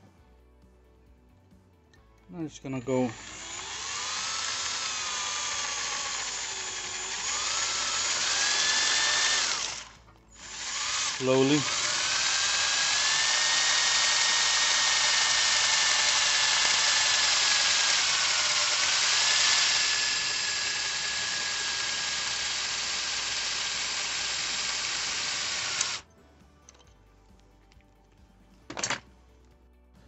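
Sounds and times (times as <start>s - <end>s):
electric drill whining through metal: 2.8s - 26.1s.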